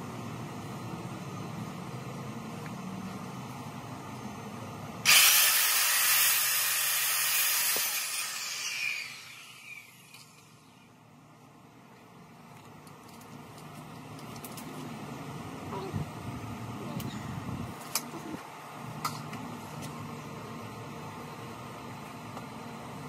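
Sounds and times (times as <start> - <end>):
circular saw cutting wood: 5.1 - 10.4
low steady background noise: 9.1 - 23.0.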